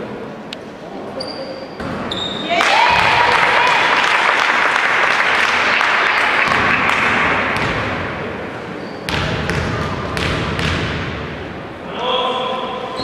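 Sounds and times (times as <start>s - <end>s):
crowd noise in sports hall: 0.0s - 13.0s
basketball bouncing on court: 6.4s - 8.2s, 9.0s - 11.3s.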